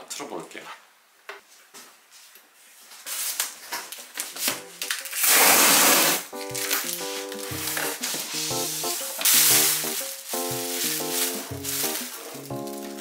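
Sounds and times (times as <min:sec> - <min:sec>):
packing tape ripping: 0:03.2 - 0:08.3, 0:09.1 - 0:13.0.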